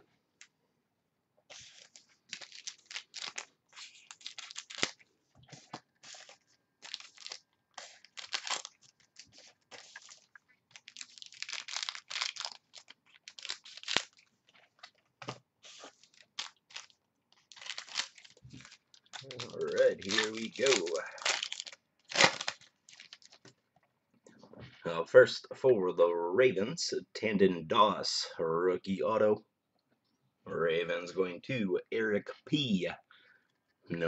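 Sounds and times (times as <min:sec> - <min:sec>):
plastic wrapping crinkling and tearing: 0:01.5 - 0:23.5.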